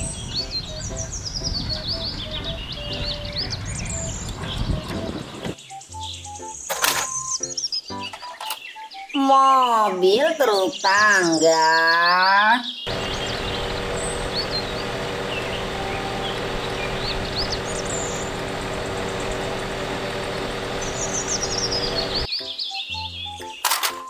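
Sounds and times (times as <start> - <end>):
birds chirping: 0.0 - 23.7
truck engine running: 12.9 - 22.3.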